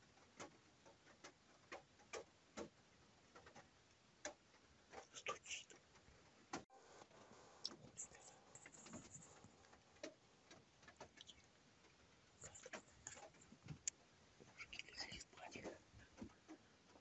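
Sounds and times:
faint clicks: 0:00.0 - 0:17.0
soft rustles: 0:04.6 - 0:17.0.

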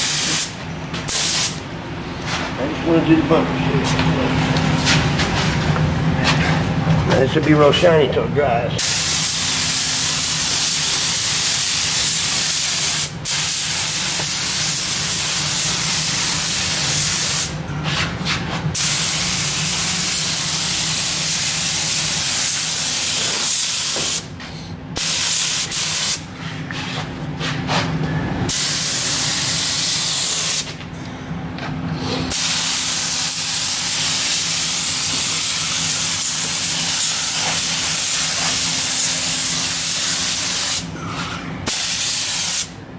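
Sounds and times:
paint spray gun hissing: 0:00.0 - 0:01.6, 0:08.8 - 0:17.5, 0:18.8 - 0:24.3, 0:25.0 - 0:26.2, 0:28.5 - 0:30.7, 0:32.3 - 0:40.8, 0:41.7 - 0:42.7
steady low hum: 0:00.0 - 0:42.9.

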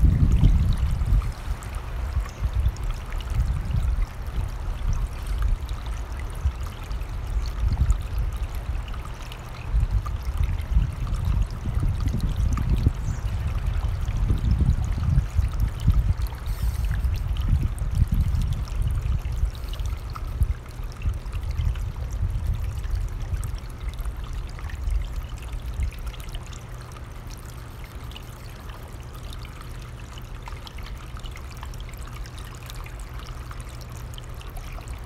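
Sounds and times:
wind on microphone: 0:00.0 - 0:09.0, 0:09.6 - 0:23.6.

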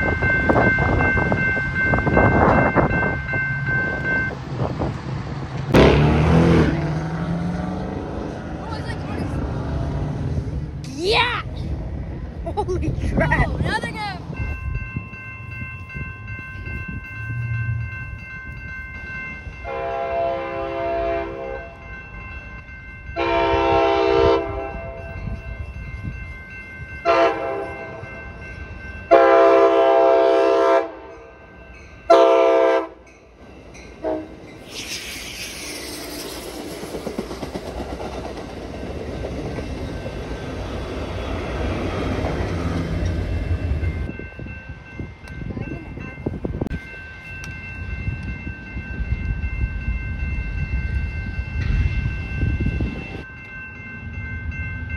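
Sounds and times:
crossing bell ringing: 0:00.0 - 0:04.7, 0:13.0 - 0:54.9
train wheels rumbling on rails: 0:00.0 - 0:54.9
train horn blasts: 0:19.6 - 0:21.8, 0:23.2 - 0:25.2, 0:27.0 - 0:28.0, 0:29.1 - 0:31.2, 0:32.1 - 0:33.0, 0:34.0 - 0:34.4.

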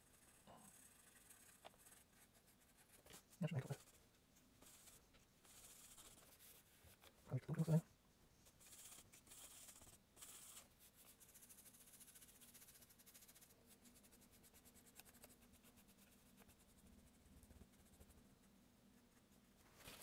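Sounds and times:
paintbrush scratching on canvas: 0:08.6 - 0:18.2.

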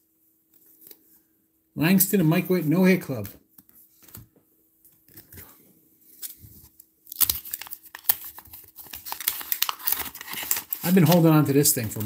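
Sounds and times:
wax paper wrapper tearing: 0:07.1 - 0:12.0.

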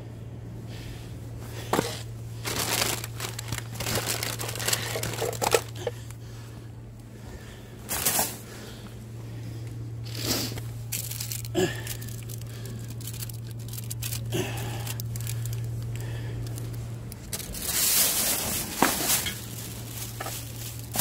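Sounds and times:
plastic crinkling: 0:01.8 - 0:05.9, 0:10.9 - 0:21.0.

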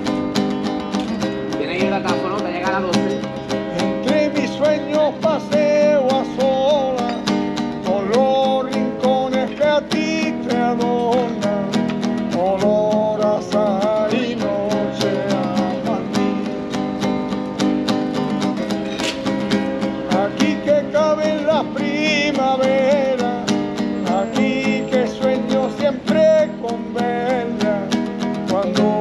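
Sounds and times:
strummed acoustic guitar: 0:00.0 - 0:29.0
person singing with vibrato: 0:24.0 - 0:27.9.

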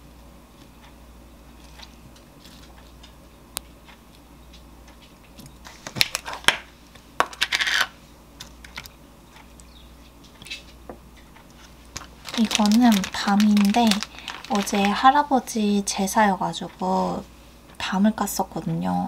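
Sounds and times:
plastic tub clicking and crackling: 0:11.9 - 0:15.1.

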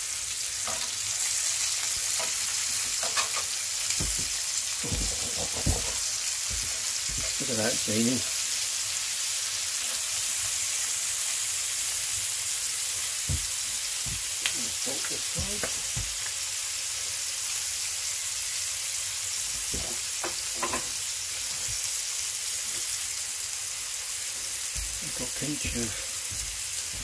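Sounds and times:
meat sizzling in a pan: 0:00.0 - 0:27.0
soft knocks: 0:04.0 - 0:07.3.

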